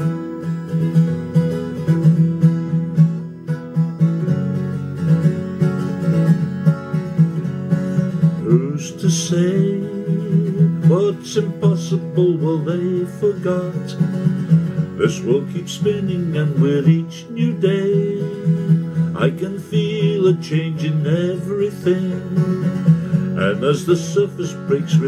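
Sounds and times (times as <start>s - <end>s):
acoustic guitar strumming: 0.0s - 25.0s
person singing: 8.0s - 25.0s.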